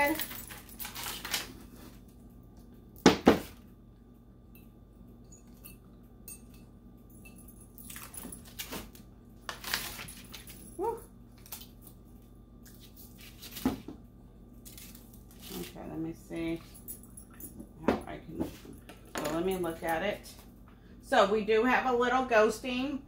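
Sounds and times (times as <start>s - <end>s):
plastic wrap crinkling and ripping: 0.2s - 2.1s, 7.9s - 10.4s, 12.7s - 13.8s, 14.6s - 15.8s.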